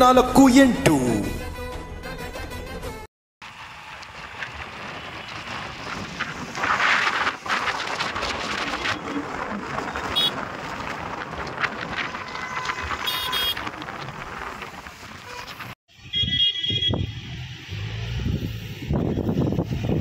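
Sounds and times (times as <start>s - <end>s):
road traffic passing: 3.4s - 20.0s
wind on microphone: 4.0s - 20.0s
vehicle horn: 10.1s - 10.4s, 12.1s - 13.9s, 15.2s - 17.0s.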